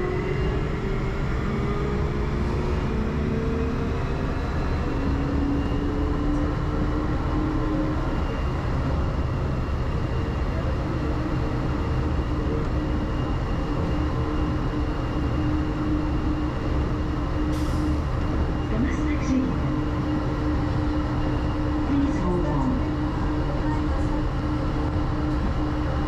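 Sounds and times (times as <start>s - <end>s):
train rumble: 0.0s - 26.0s.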